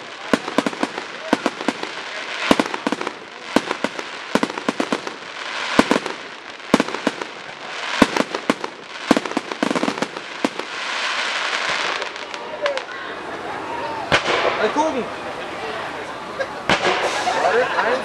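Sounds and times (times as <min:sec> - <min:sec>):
fireworks bangs and cracks: 0:00.0 - 0:12.9, 0:14.1 - 0:15.0, 0:16.6 - 0:18.0
fireworks hissing: 0:00.0 - 0:12.9, 0:16.6 - 0:18.0.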